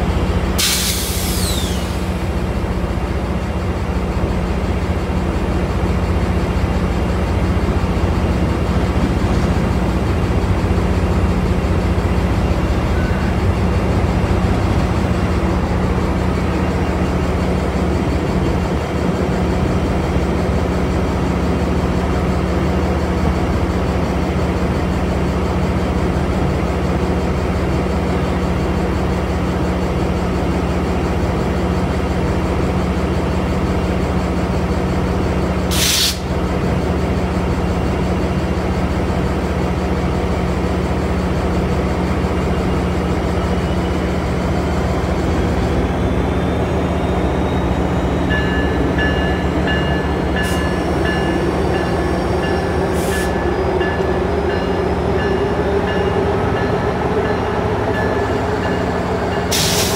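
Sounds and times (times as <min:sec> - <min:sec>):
diesel locomotive idling: 0:00.0 - 0:59.9
air brake hiss: 0:00.6 - 0:02.1, 0:35.7 - 0:36.3, 0:59.5 - 0:59.9.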